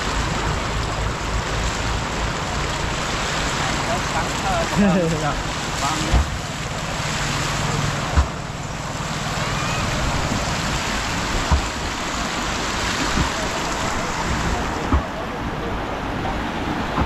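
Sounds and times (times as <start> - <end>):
floodwater rushing: 0.0 - 17.0
low thumps: 10.1 - 12.1.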